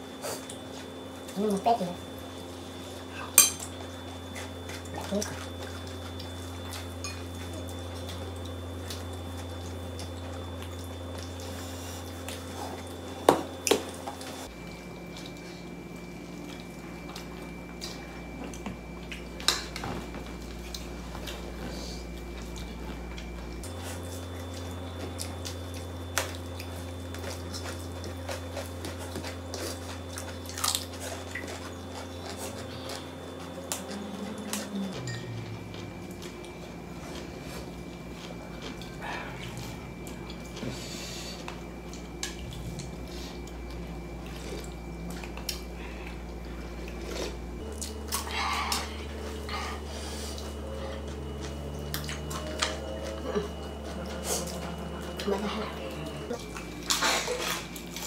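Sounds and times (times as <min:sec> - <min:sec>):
steady low hum: 0:00.0 - 0:58.0
dishes clinking: 0:03.3 - 0:03.7.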